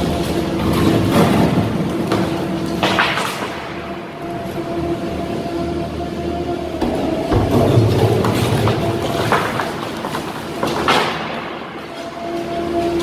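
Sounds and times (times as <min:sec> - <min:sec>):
machine hum: 0:00.0 - 0:13.0
concrete cracking and crumbling: 0:07.5 - 0:12.5.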